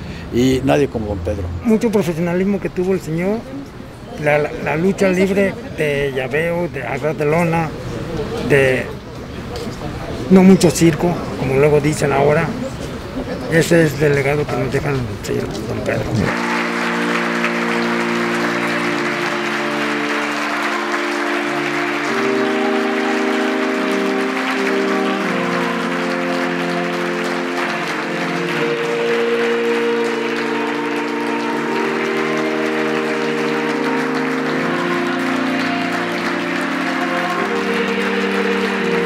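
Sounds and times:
music of long held chords: 16.2s - 39.0s
crowd applauding: 16.3s - 39.0s.

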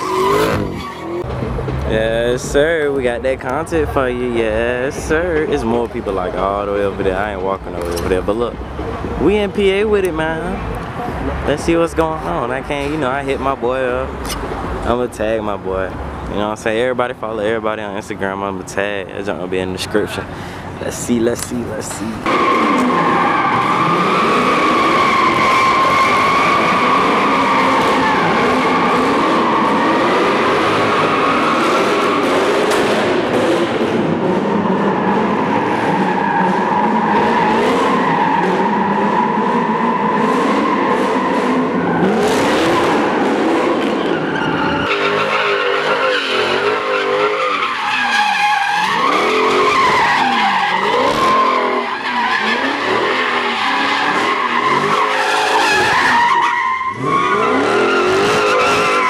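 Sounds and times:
tires squealing: 0.0s - 59.0s
engines at high revs: 22.3s - 47.6s, 48.8s - 56.2s, 56.9s - 59.0s.

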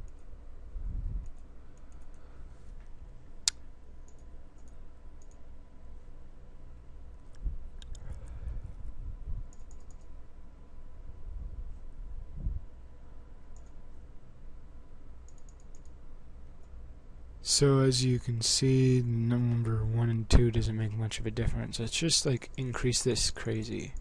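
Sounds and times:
computer mouse and key clicks: 0.0s - 0.3s, 1.2s - 2.2s, 3.5s - 5.4s, 7.3s - 8.2s, 9.5s - 10.1s, 13.5s - 13.8s, 15.2s - 16.0s.

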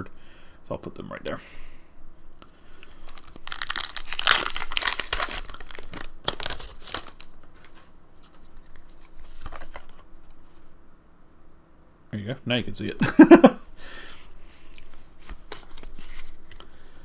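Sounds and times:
foil wrapper tearing open: 2.8s - 7.4s.

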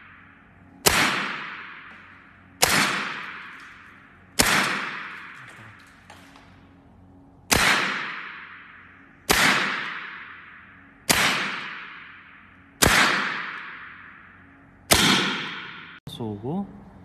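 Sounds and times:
air rifle shots echoing: 0.0s - 6.7s, 7.5s - 16.0s.

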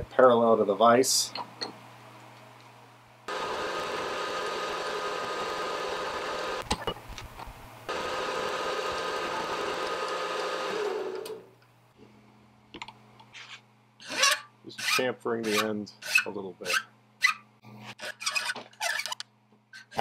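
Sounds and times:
milling machine cutting metal: 3.3s - 6.6s, 7.9s - 11.4s
spindle winding down: 7.9s - 11.5s.

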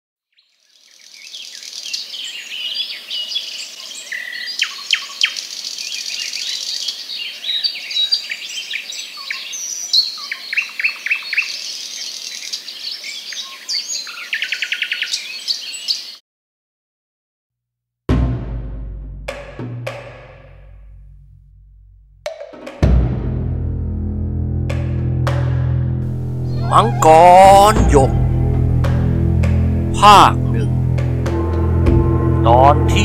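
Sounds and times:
birds chirping and whistling: 26.1s - 29.7s.

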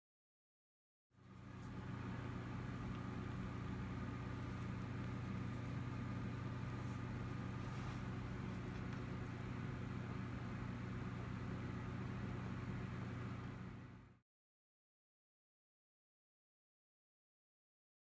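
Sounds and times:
low mechanical hum: 1.2s - 14.2s.

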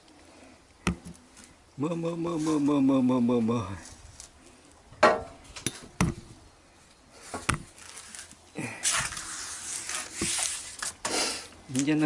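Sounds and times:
scraping and rubbing: 7.2s - 12.0s.

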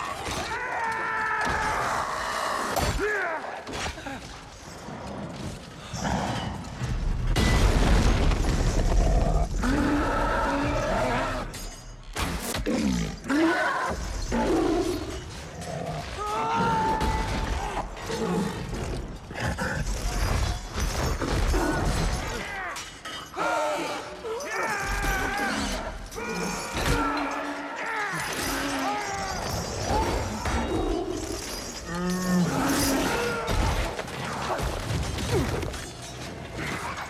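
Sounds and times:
creature roaring: 9.0s - 11.5s.

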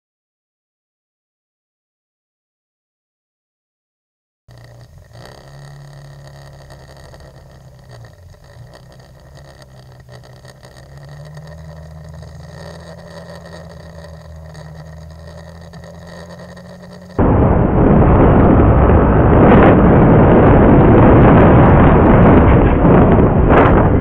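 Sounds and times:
scooter engine running: 4.5s - 17.2s.

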